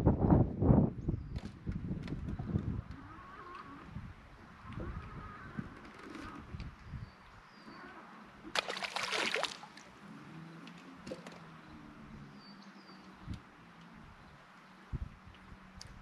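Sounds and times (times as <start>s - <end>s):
water splashing: 8.4s - 11.6s.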